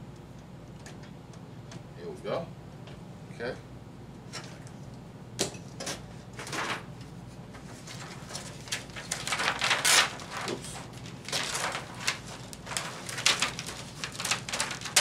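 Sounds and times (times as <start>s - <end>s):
plastic sheet rustling and crinkling: 7.5s - 15.0s.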